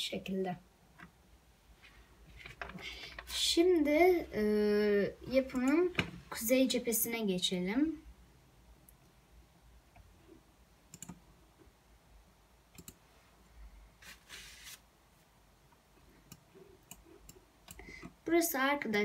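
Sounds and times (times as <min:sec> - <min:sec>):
computer clicks: 0:05.5 - 0:05.8, 0:10.9 - 0:11.2, 0:12.7 - 0:13.0
scratchy rustle: 0:14.0 - 0:14.8.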